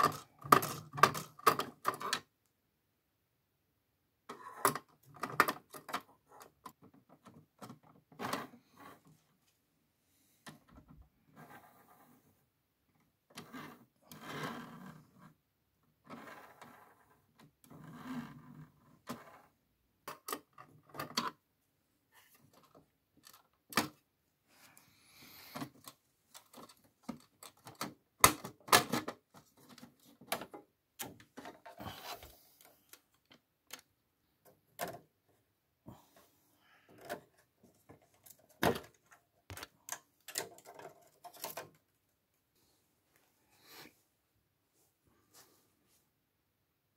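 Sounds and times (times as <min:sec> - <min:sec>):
plastic clicks knocks and rattles: 0:00.0 - 0:02.4, 0:04.3 - 0:08.6, 0:18.9 - 0:21.4, 0:22.5 - 0:24.1, 0:25.6 - 0:31.8, 0:32.6 - 0:35.2, 0:37.0 - 0:42.0.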